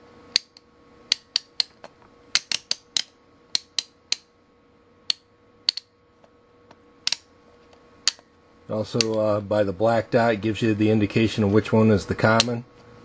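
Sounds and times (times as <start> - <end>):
rotary switch clicks: 0.3 - 4.3, 5.0 - 6.0, 7.0 - 7.3, 8.9 - 9.2.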